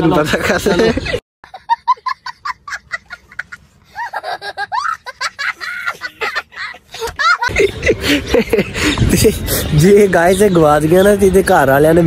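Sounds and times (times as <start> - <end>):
young child laughing: 0.6 - 9.4.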